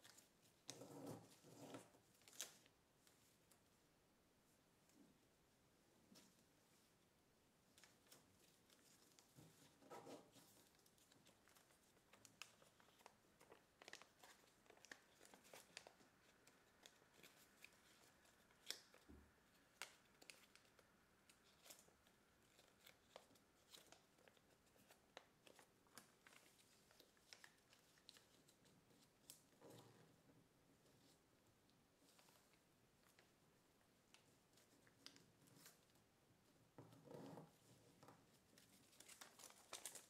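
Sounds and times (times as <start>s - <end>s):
paper being folded and creased: 0.0s - 3.4s, 7.7s - 30.0s, 32.0s - 36.0s, 37.4s - 40.0s.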